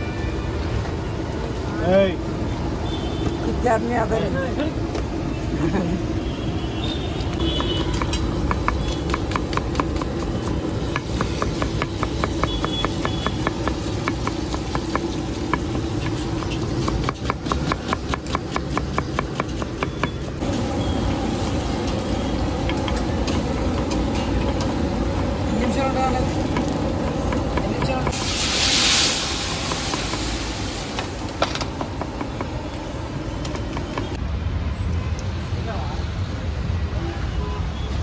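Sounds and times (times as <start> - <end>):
street traffic: 0.0 - 38.0
knife chopping on wooden board: 10.9 - 20.2.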